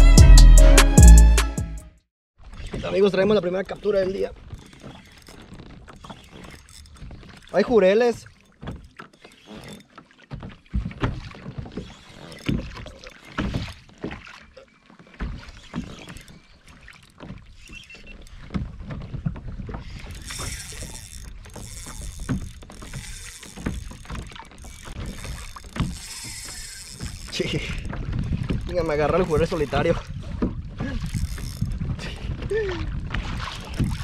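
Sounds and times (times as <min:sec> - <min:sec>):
water lapping against kayak hull: 0:02.4 - 0:34.0
fishing reel whirring: 0:02.9 - 0:10.1, 0:11.4 - 0:14.0, 0:15.4 - 0:18.6, 0:19.8 - 0:30.1, 0:30.8 - 0:32.3, 0:33.4 - 0:34.0
wind rumbling on microphone: 0:18.4 - 0:34.0.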